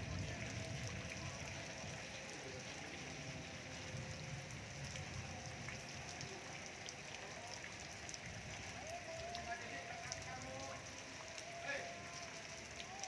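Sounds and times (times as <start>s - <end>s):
rain falling: 0.0s - 13.0s
raindrops ticking on surfaces: 0.0s - 13.0s.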